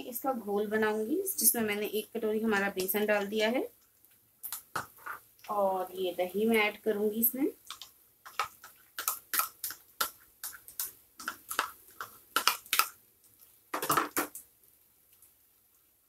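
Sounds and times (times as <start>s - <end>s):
spoon scraping and tapping: 7.7s - 12.9s.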